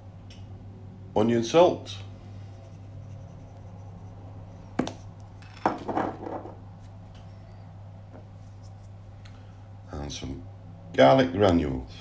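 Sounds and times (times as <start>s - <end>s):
shaker knock and clatter: 4.8s - 6.6s.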